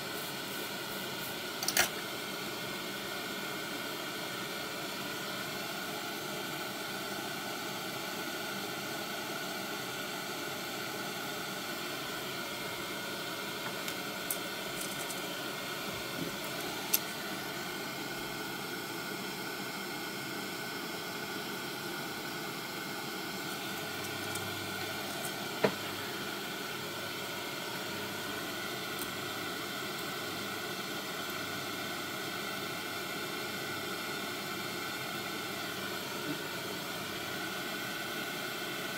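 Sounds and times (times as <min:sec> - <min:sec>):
small parts clicking and tapping: 0:13.8 - 0:15.2.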